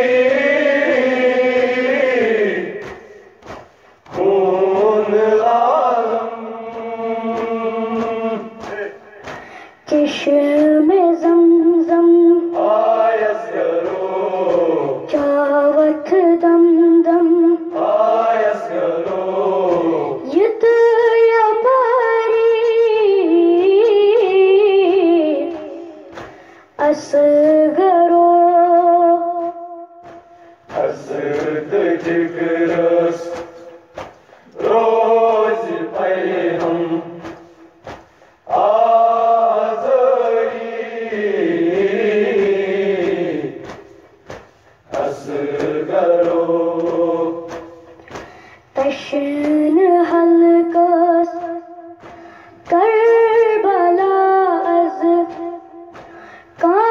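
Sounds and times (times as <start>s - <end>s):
boy chanting a lament: 9.7s - 12.6s, 14.9s - 17.7s, 26.7s - 29.6s, 48.7s - 51.6s, 52.7s - 56.9s.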